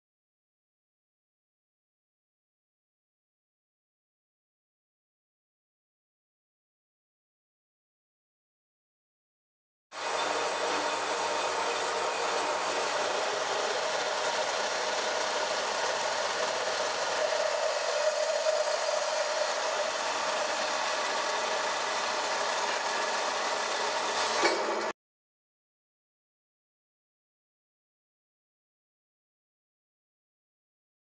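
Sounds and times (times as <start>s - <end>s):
metal saw cutting steel: 10.0s - 24.9s.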